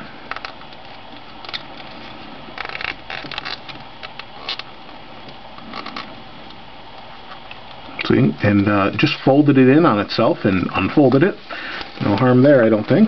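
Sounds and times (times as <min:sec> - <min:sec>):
vinyl film peeling and crinkling: 0:00.1 - 0:07.9, 0:10.8 - 0:13.0.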